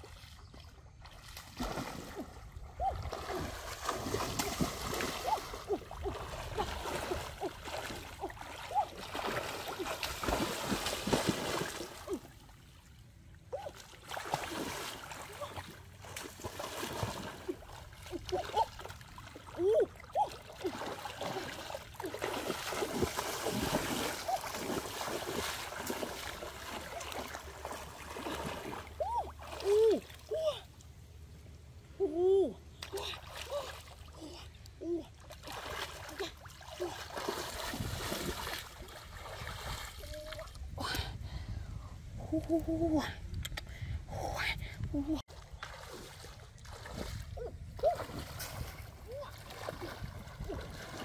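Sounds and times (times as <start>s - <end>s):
water splashing as person wades: 0.0s - 30.9s, 32.6s - 40.7s, 45.3s - 51.0s.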